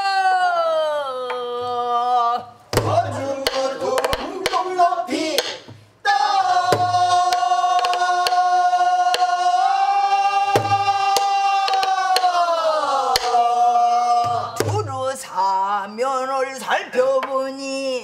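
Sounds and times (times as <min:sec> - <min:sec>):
drum stick taps: 0:02.8 - 0:04.7, 0:05.4 - 0:05.8, 0:06.7 - 0:08.4, 0:10.6 - 0:12.4.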